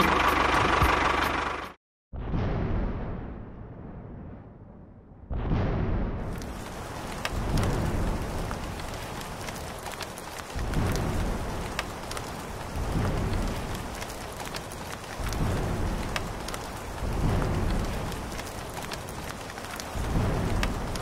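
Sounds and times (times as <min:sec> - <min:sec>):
low rumbles of thunder: 0:02.2 - 0:21.0
steady rain: 0:06.3 - 0:21.0.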